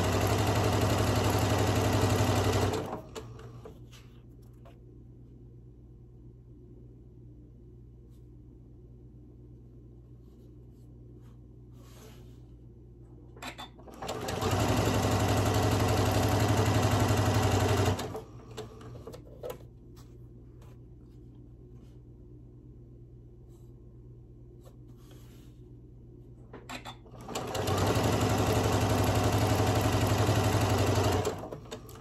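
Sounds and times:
sewing machine running: 0:00.0 - 0:03.5, 0:13.9 - 0:19.0, 0:27.1 - 0:32.0.

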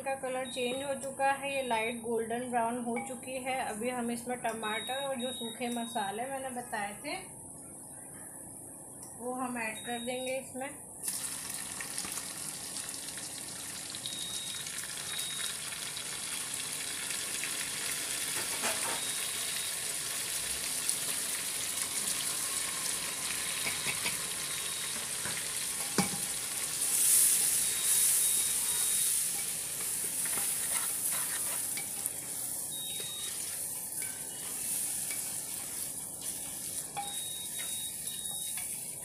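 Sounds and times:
vegetables sizzling in hot oil: 0:11.0 - 0:39.0.

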